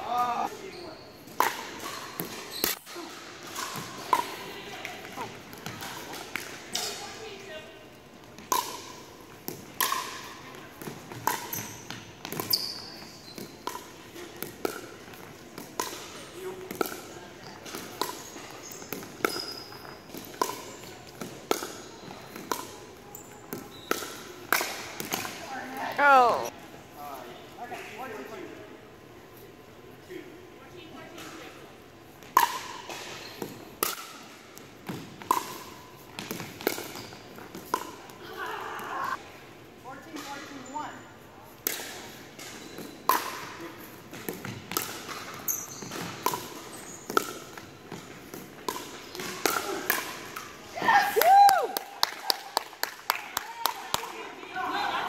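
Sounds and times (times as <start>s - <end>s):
ball bouncing on hardwood court: 8.3s - 25.4s, 32.2s - 38.0s, 44.1s - 50.5s.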